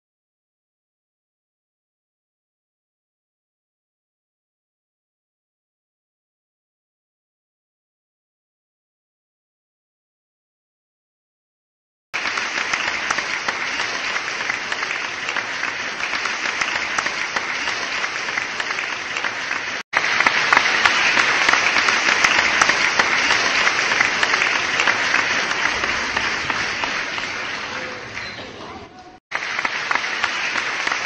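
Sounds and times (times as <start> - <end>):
crowd applauding: 12.2 - 31.0.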